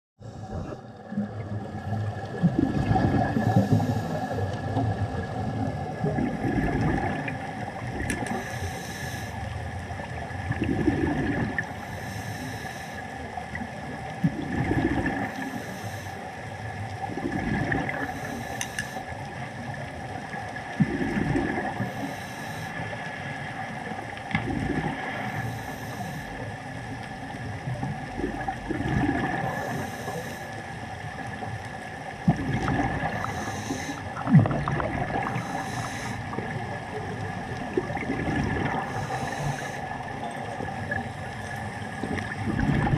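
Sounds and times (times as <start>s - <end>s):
steady hum: 0.2s - 5.6s, 32.3s - 42.9s
regulator hiss on inhalation: 3.4s - 4.4s, 8.3s - 9.4s, 11.8s - 13.1s, 15.4s - 16.2s, 18.0s - 19.1s, 21.8s - 22.9s, 25.3s - 26.4s, 29.5s - 30.6s, 33.2s - 34.1s, 35.3s - 36.4s, 38.8s - 39.9s
bubbling on exhalation: 10.5s - 11.6s, 28.3s - 29.5s, 34.2s - 35.3s, 37.7s - 38.9s, 42.0s - 42.9s.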